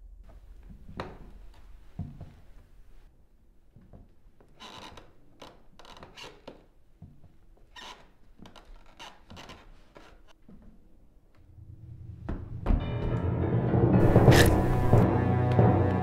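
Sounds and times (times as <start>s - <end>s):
coat rustling: 14.0s - 15.0s
footsteps scraping on wooden floor: 14.0s - 15.0s.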